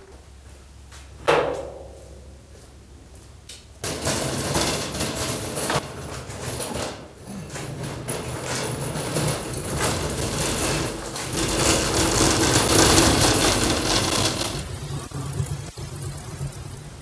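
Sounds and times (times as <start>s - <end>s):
wooden boards rattling: 3.8s - 15.0s
metal cart rolling on concrete: 3.8s - 16.1s.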